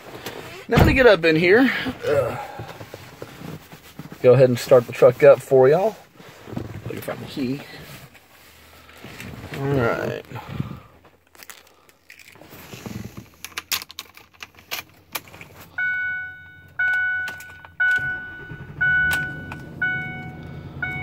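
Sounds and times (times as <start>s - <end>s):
dashboard warning chime: 15.7s - 21.0s
engine starting and idling: 17.8s - 21.0s.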